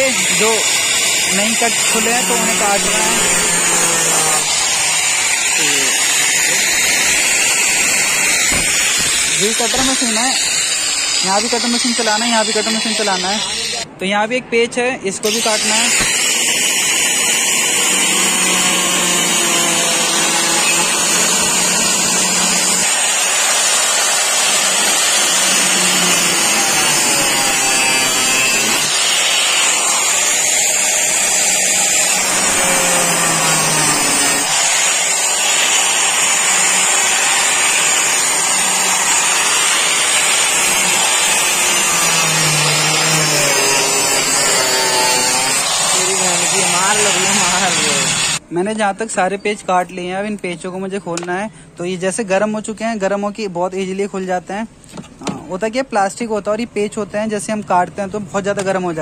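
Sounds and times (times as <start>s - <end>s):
angle grinder cutting metal: 0.0s - 13.9s, 15.2s - 48.4s.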